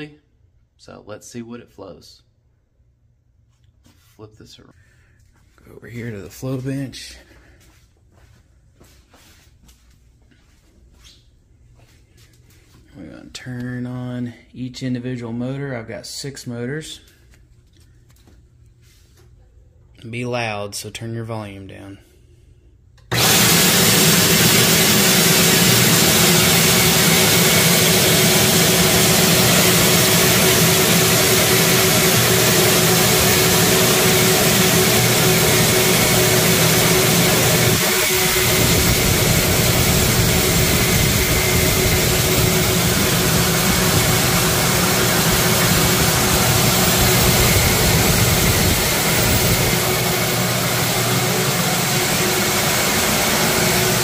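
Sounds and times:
vacuum motors whining: 0:23.0 - 0:54.0.

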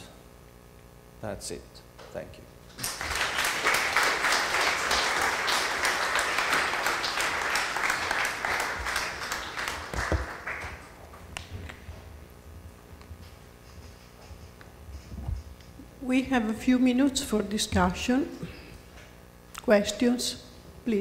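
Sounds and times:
audience applauding: 0:02.8 - 0:11.5.

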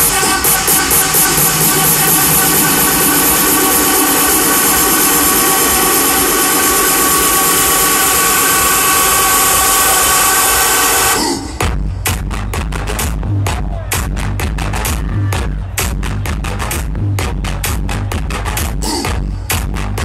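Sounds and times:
dense wash of noise: 0:00.0 - 0:11.9.

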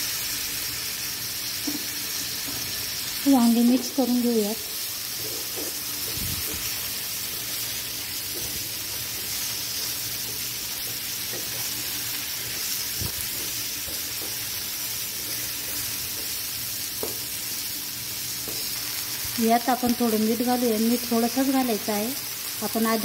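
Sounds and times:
vegetables sizzling in hot oil: 0:00.0 - 0:23.0.

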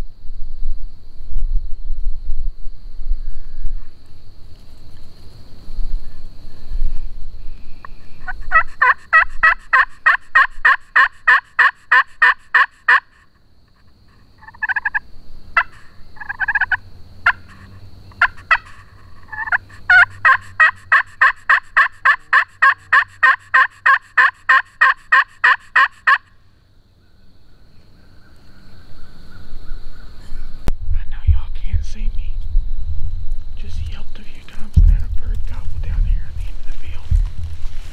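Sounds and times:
faint insect buzz: 0:00.0 - 0:23.2
turkey call yelps: 0:08.2 - 0:13.3, 0:14.4 - 0:15.0, 0:15.6 - 0:26.4.

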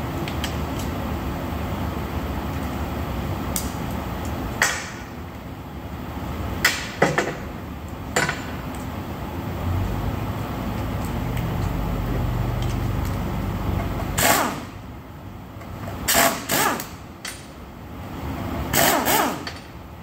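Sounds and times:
workshop background noise: 0:00.0 - 0:20.0
metal tools knocking and clinking: 0:08.2 - 0:08.6.

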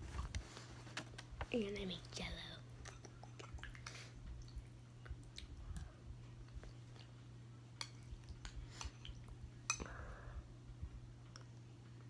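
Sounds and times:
soft chewing: 0:02.6 - 0:10.1, 0:10.7 - 0:12.0.

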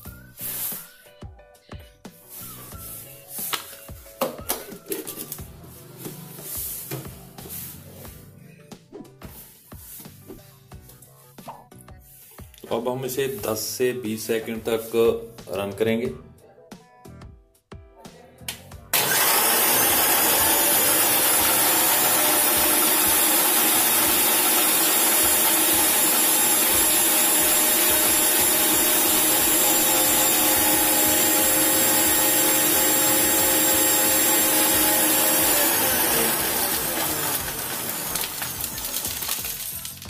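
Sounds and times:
blender motor running: 0:18.9 - 0:40.0
blades churning ice and liquid: 0:19.0 - 0:40.0.

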